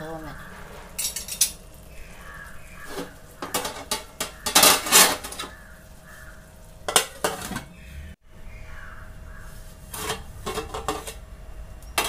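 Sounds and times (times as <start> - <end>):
metal utensil scraping pot: 0.4 - 1.7, 2.7 - 5.6, 6.9 - 7.9, 9.8 - 11.3
metal lid clanking: 0.5 - 1.6, 2.9 - 5.5, 6.9 - 7.8, 9.9 - 11.3.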